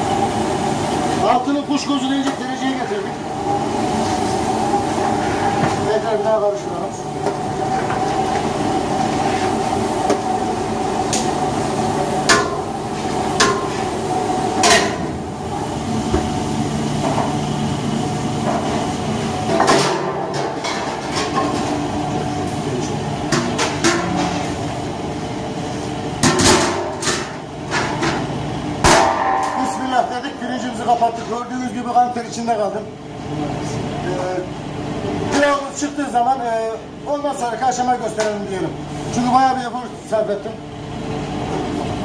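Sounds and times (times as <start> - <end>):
pot boiling hard: 0.0 - 30.9
sharp metallic knocks: 28.8 - 30.1.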